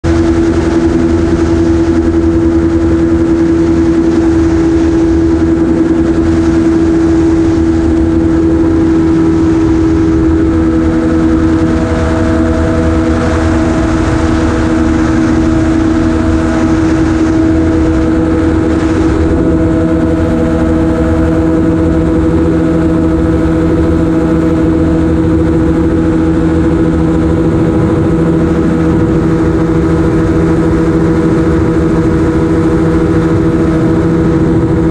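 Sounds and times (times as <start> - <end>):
aircraft engine and propeller: 0.0 - 34.9
rush of air: 0.0 - 34.9.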